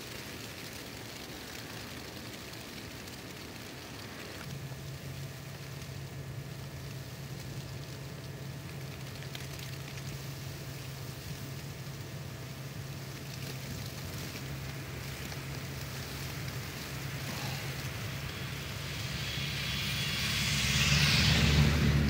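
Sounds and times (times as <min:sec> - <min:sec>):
steady low hum: 0:00.0 - 0:22.0
car passing on snowy street: 0:12.8 - 0:22.0.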